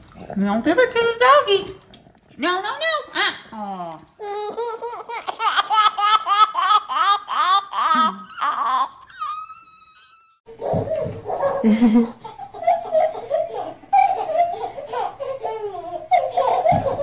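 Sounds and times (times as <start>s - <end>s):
baby crying wail: 4.2s - 10.4s
people laughing and giggling: 11.5s - 15.7s.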